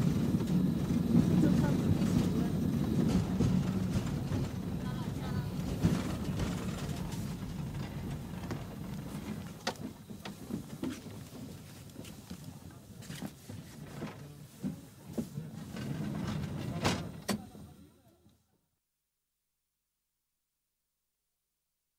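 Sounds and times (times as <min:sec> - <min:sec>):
clanks and knocks from tram body: 0:00.0 - 0:11.2
tram running rumble: 0:00.0 - 0:17.8.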